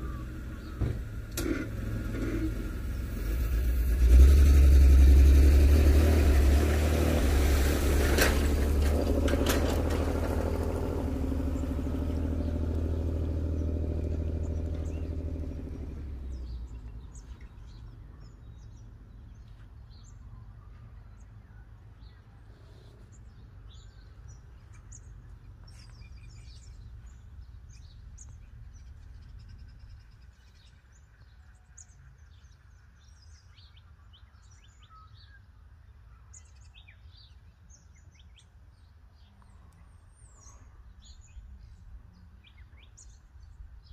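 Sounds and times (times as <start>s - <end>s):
small birds chirping: 0.0s - 3.2s, 11.4s - 43.9s
vehicle engine running: 0.0s - 18.9s.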